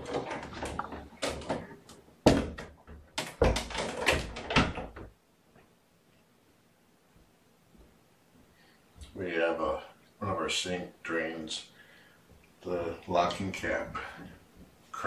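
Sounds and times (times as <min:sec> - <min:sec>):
knocks and clattering: 0:00.0 - 0:05.2.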